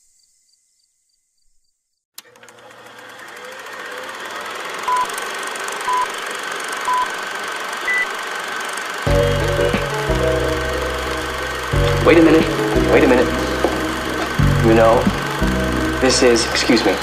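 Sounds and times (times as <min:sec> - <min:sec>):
film projector rattling whir: 0:02.2 - 0:17.0
short beeps: 0:04.9 - 0:05.1, 0:05.9 - 0:06.1, 0:06.9 - 0:07.1, 0:07.9 - 0:08.1
music: 0:09.1 - 0:17.0.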